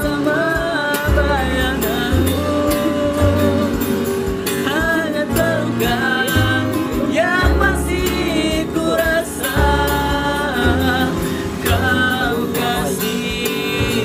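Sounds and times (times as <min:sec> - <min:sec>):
strummed acoustic guitar: 0:00.0 - 0:14.0
two men singing together: 0:00.0 - 0:14.0.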